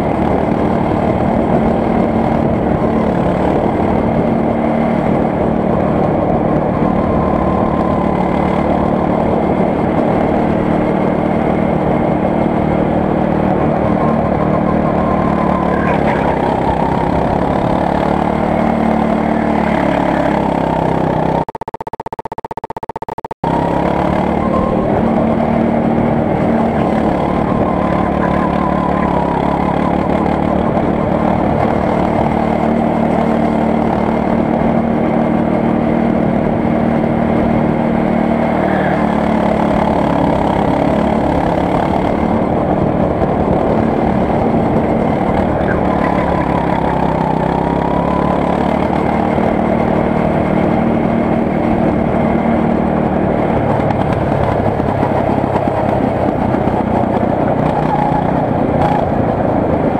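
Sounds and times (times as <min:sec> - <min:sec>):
go-kart engine drone: 0:00.0 - 0:22.8, 0:23.4 - 0:59.9.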